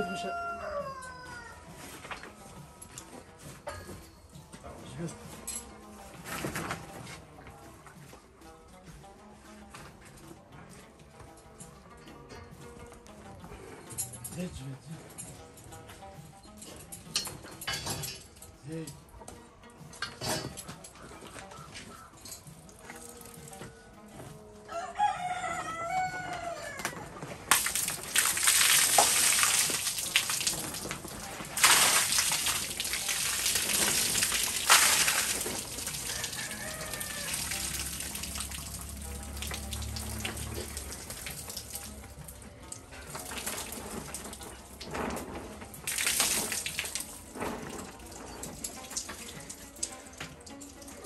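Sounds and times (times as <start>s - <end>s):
rooster crowing: 0.0s - 1.8s, 24.6s - 27.1s, 35.9s - 38.5s
water splashing off a tarp: 27.5s - 42.1s, 43.1s - 50.6s.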